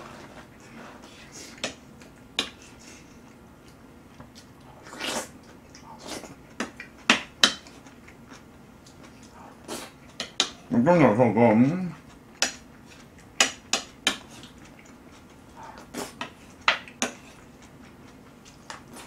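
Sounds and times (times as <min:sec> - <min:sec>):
slurping: 0:04.6 - 0:06.4.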